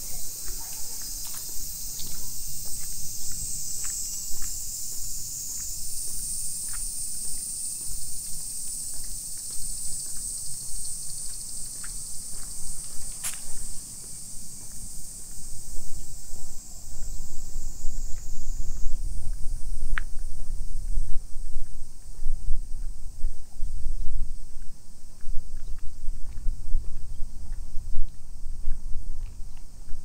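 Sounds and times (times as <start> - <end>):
cicadas shrilling: 0.0 - 25.8.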